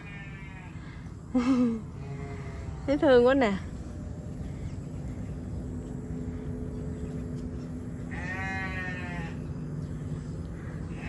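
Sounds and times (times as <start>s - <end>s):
goat bleating: 0.0s - 0.7s, 8.1s - 9.4s
steady low hum: 0.0s - 11.0s.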